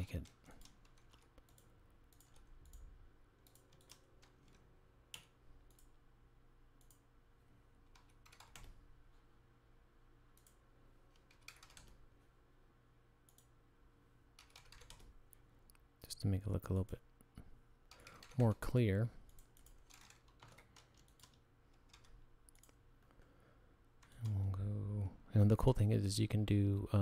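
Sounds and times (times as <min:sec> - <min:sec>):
computer mouse clicks: 0:00.1 - 0:06.0, 0:06.8 - 0:07.0, 0:10.3 - 0:12.0, 0:13.3 - 0:13.5, 0:19.2 - 0:23.2
keyboard keystrokes: 0:03.4 - 0:05.9, 0:07.9 - 0:08.8, 0:11.2 - 0:12.0, 0:14.4 - 0:15.1, 0:19.3 - 0:22.8.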